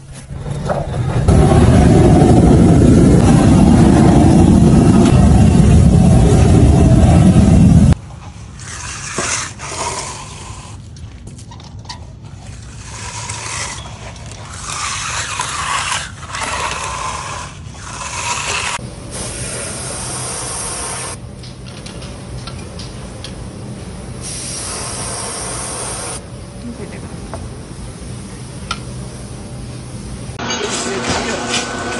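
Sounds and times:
float scraping over wet concrete: 0:08.2 - 0:18.8.

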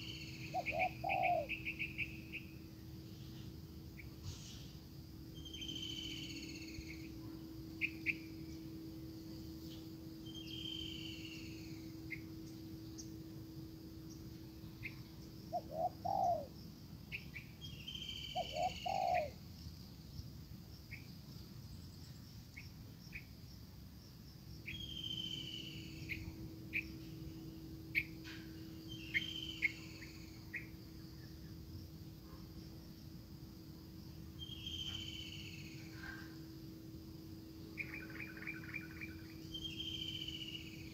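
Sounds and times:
dove cooing: 0:00.0 - 0:01.8, 0:15.5 - 0:16.6, 0:18.3 - 0:19.4
faint steady hum: 0:00.0 - 0:40.9
songbird chirping: 0:00.0 - 0:40.9.

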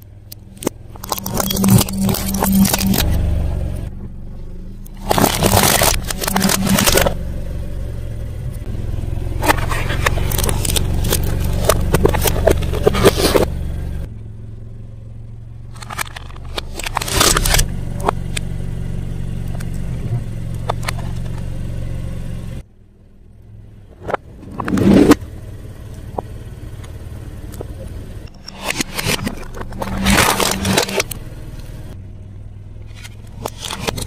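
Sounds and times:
car engine running: 0:00.0 - 0:34.0
tyre crunching small objects: 0:00.3 - 0:03.2, 0:04.9 - 0:07.2, 0:09.4 - 0:13.5, 0:15.7 - 0:18.2, 0:28.3 - 0:31.2, 0:32.9 - 0:34.0.

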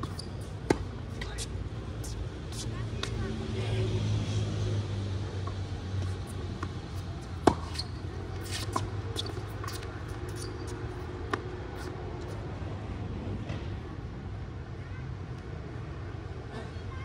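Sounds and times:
racket hitting tennis ball: 0:00.0 - 0:03.2, 0:05.4 - 0:11.5.

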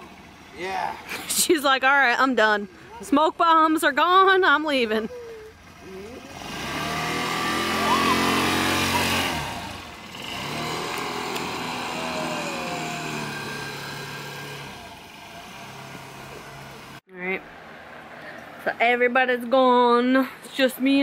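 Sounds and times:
scooter engine running: 0:04.1 - 0:17.0.

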